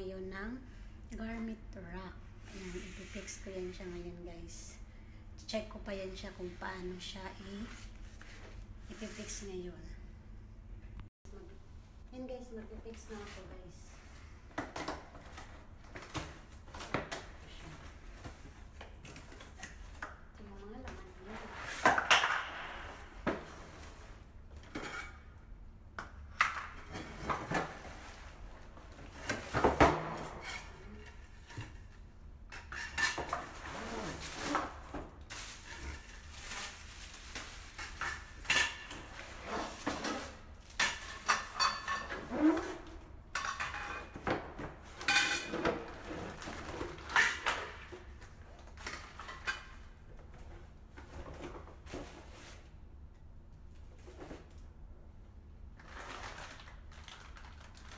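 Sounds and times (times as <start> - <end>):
cardboard and plastic rustling: 33.3 - 38.4, 45.6 - 52.7, 55.8 - 57.9.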